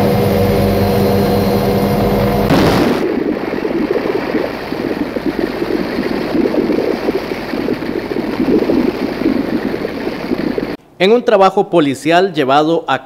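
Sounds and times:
helicopter engine and rotor drone: 0.0s - 2.5s
wind rushing over microphone: 0.0s - 10.8s.

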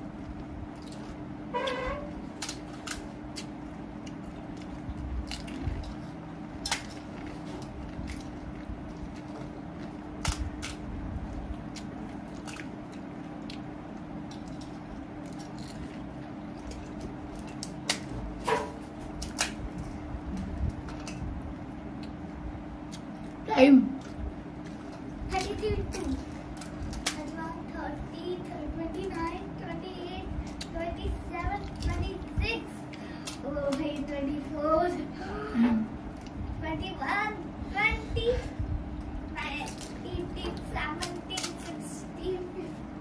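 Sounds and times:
steady low hum: 0.0s - 43.0s
wet squishy chewing: 0.1s - 1.3s, 2.1s - 20.9s, 30.4s - 34.1s
crisp shells cracking: 2.2s - 6.0s, 19.0s - 19.6s
clicks and crunches: 2.2s - 10.9s, 11.5s - 21.2s, 24.0s - 27.4s, 39.6s - 41.8s.

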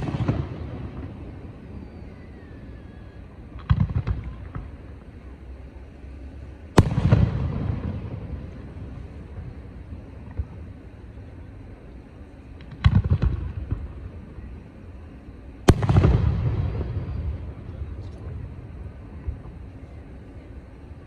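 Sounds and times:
loud fireworks boom echoing: 0.0s - 5.0s, 6.7s - 10.8s, 12.6s - 14.1s, 15.6s - 19.7s
fireworks bangs: 0.0s - 5.2s, 6.7s - 11.0s, 12.4s - 14.6s, 15.5s - 20.8s.

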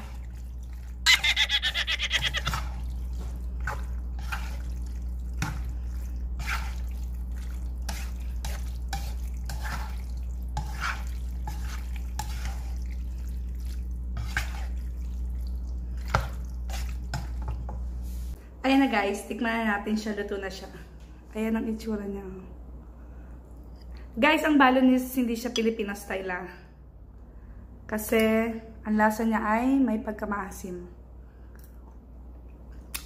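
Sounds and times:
wet squelching pasta: 0.0s - 18.4s
low steady hum: 0.0s - 33.0s
spatula scraping frying pan: 3.6s - 4.8s, 6.4s - 7.0s, 7.8s - 12.9s, 14.1s - 14.8s.

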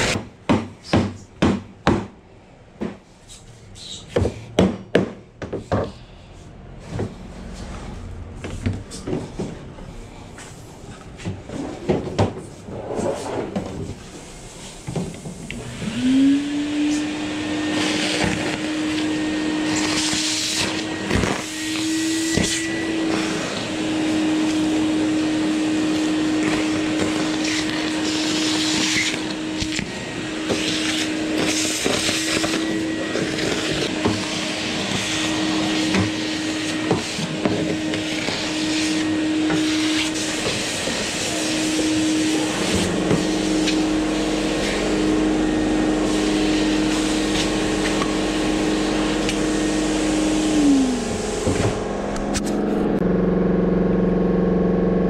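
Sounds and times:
vacuum motor humming: 14.2s - 55.0s.

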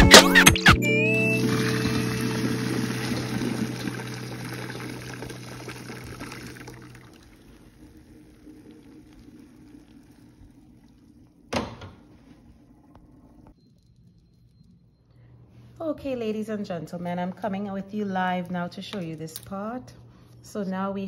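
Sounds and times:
water pouring through colander: 1.4s - 14.6s.

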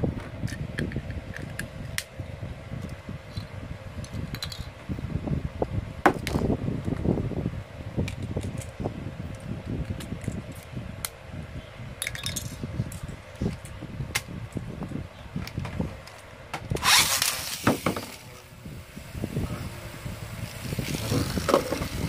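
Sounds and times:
rasping rip of top launch: 16.8s - 18.0s.

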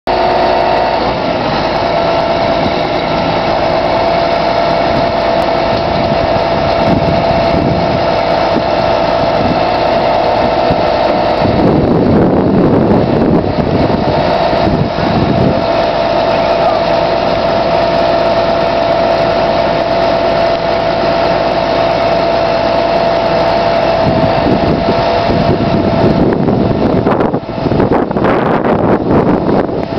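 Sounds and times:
diesel engine running: 0.0s - 29.9s
hydraulic crane whine: 0.0s - 29.9s.

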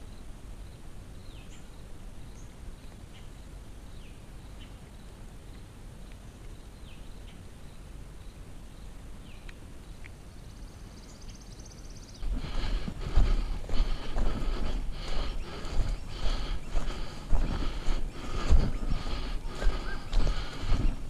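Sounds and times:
footsteps through long grass: 12.2s - 21.0s.

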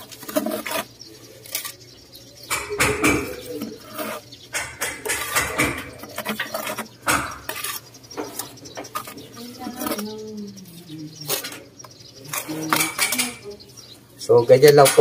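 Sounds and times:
trowel scraping and clinking: 3.3s - 7.8s.

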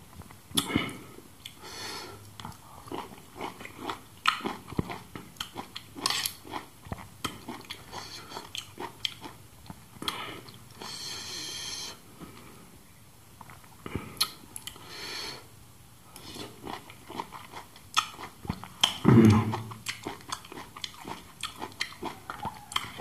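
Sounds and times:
wet chewing and lip-smacking: 2.2s - 10.6s, 13.4s - 14.8s, 16.1s - 23.0s.

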